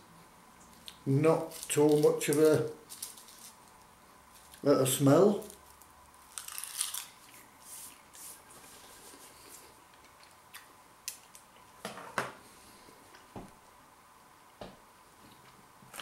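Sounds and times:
crispy seaweed crunching: 0.8s - 3.8s, 5.3s - 7.5s.

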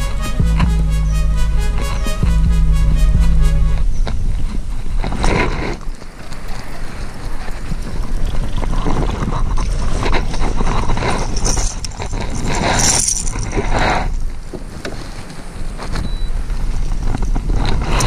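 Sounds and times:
wind rumbling on microphone: 3.7s - 18.0s.

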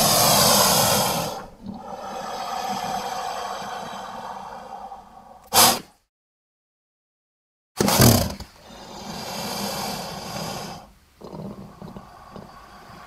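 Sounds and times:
monster roaring: 0.0s - 5.4s.

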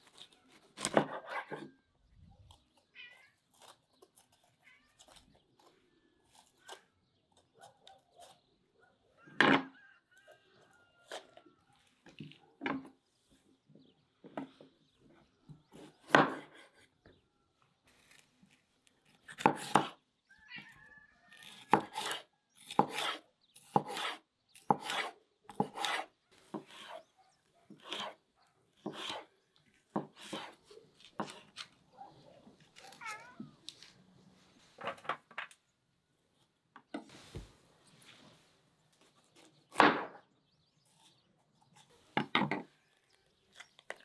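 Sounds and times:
knife chopping on wooden board: 15.8s - 16.8s, 19.2s - 20.0s, 21.4s - 27.0s, 27.7s - 28.2s, 28.8s - 29.3s, 29.9s - 31.5s.

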